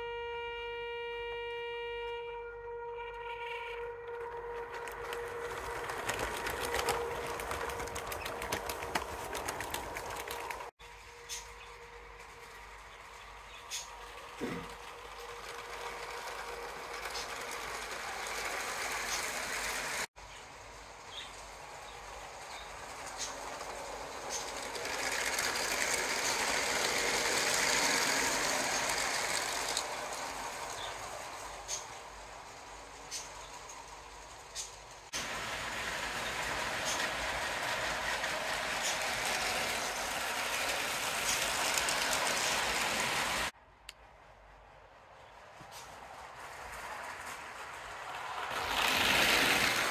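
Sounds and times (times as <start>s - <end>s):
train wheels clattering on track: 4.0s - 43.6s, 45.2s - 49.9s
toy train motor whirring: 4.3s - 43.5s, 45.7s - 49.9s.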